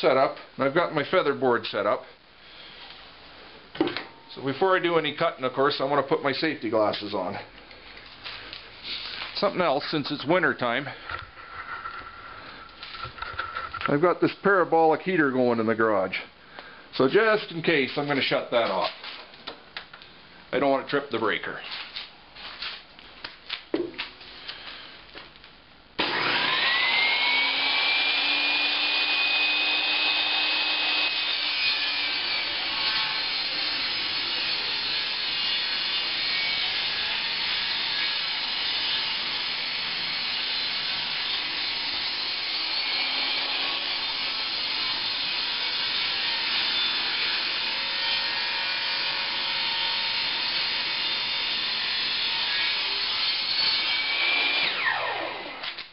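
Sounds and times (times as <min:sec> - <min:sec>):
table saw motor whine: 0:26.0 - 0:38.5, 0:39.4 - 0:55.8.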